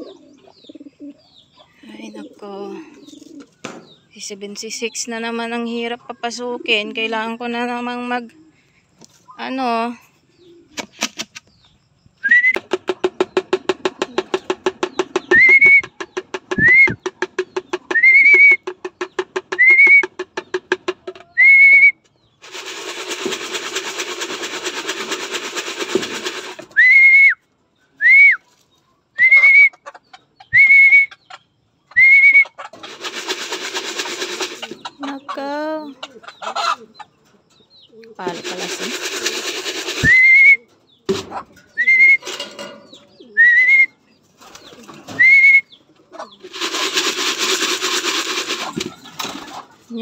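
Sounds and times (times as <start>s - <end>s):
person whistling: 12.2s - 12.6s, 15.3s - 15.9s, 16.6s - 17.0s, 17.9s - 18.6s, 19.6s - 20.1s, 21.3s - 22.0s, 26.8s - 27.4s, 28.0s - 28.4s, 29.2s - 29.7s, 30.6s - 31.1s, 32.0s - 32.5s, 40.0s - 40.7s, 41.8s - 42.3s, 43.4s - 44.0s, 45.2s - 45.7s
rhythmic rattle: 22.4s - 26.6s, 32.8s - 34.9s, 38.2s - 40.4s, 46.4s - 50.0s.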